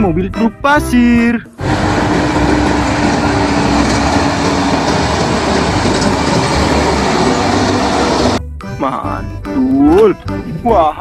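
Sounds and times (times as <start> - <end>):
diesel truck engines: 1.6 - 8.4
steady hum: 1.6 - 8.4.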